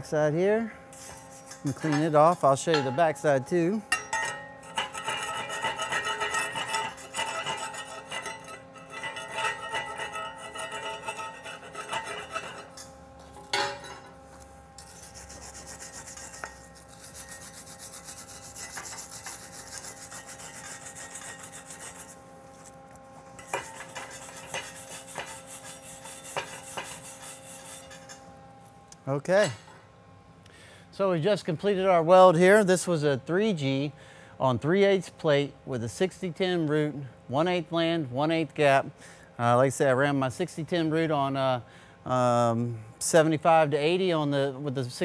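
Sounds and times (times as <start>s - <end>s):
wire brush rasping: 0.9s - 3.0s, 4.6s - 12.9s, 14.8s - 22.8s, 23.4s - 28.2s.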